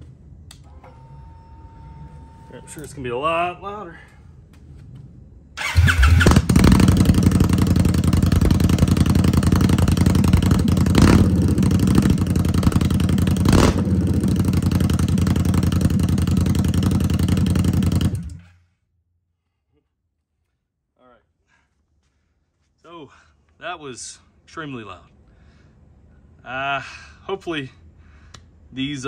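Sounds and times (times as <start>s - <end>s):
engine throttle blips: 5.6s - 18.4s
loud motorcycle engine idling: 5.6s - 18.4s.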